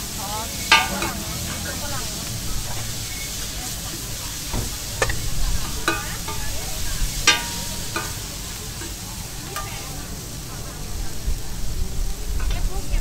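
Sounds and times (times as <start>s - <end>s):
food sizzling on griddle: 0.0s - 13.0s
metal spatula scraping pan: 0.6s - 2.1s, 4.3s - 9.0s
ringing clanks: 0.7s - 1.6s, 4.5s - 8.4s.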